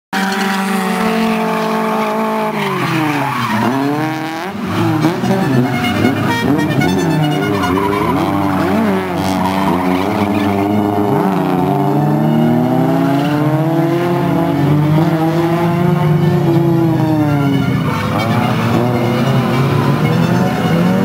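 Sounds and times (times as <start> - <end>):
car engines revving: 0.1 - 21.0
tyres squealing: 0.2 - 13.0.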